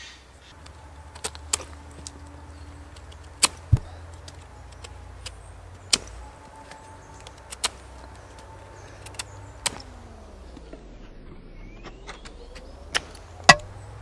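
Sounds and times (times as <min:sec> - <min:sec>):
sharp wooden clicks and cracks: 0:00.6 - 0:10.8.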